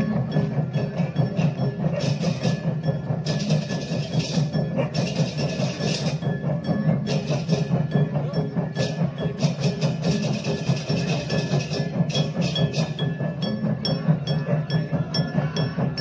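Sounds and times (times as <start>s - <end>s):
cymbals beating in rhythm: 0.0s - 16.0s
drums beating: 0.0s - 16.0s
wooden cowbells clattering: 0.0s - 16.0s.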